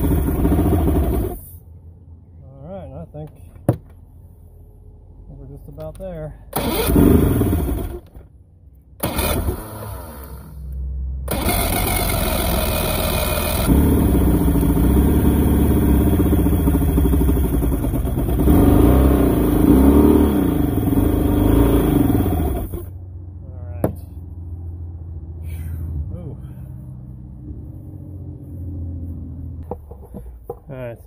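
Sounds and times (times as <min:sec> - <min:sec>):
outboard motor starting and running: 0:00.0 - 0:01.4, 0:06.5 - 0:08.1, 0:09.0 - 0:10.6, 0:11.2 - 0:22.9.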